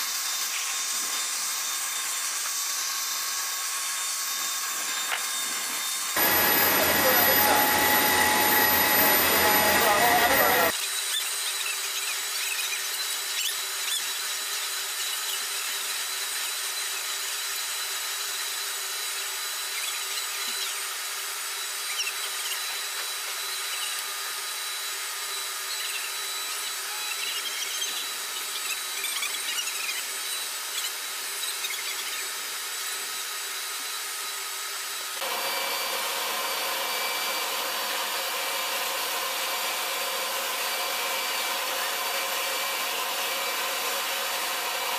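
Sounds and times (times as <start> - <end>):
aircraft turbine whine: 5.8 - 10.7.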